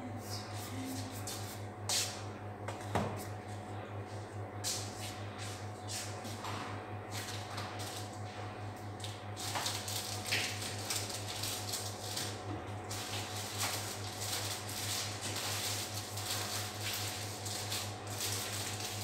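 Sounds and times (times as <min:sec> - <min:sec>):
steady low hum: 0:00.0 - 0:19.0
plastic wrapping rustling: 0:09.4 - 0:19.0.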